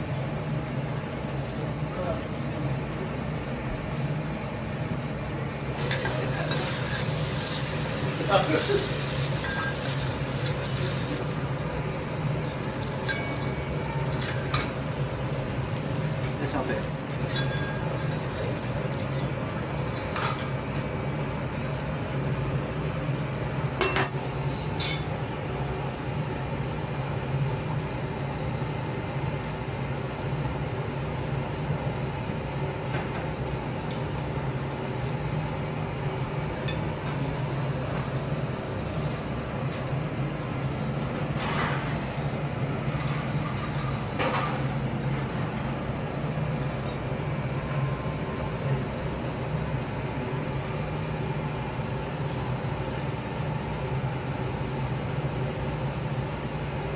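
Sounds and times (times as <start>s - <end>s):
metal utensils clinking on griddle: 5.8s - 11.3s, 12.4s - 14.8s, 15.4s - 20.6s, 23.8s - 24.2s, 24.8s - 25.1s, 41.4s - 44.8s.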